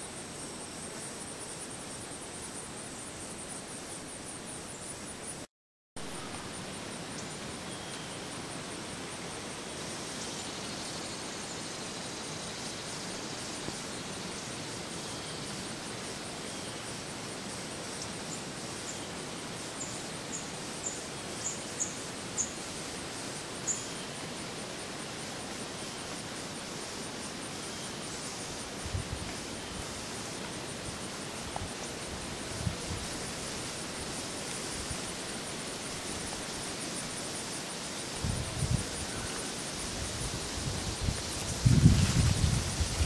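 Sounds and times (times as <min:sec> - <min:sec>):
outdoor background hiss: 0:00.0 - 0:43.0.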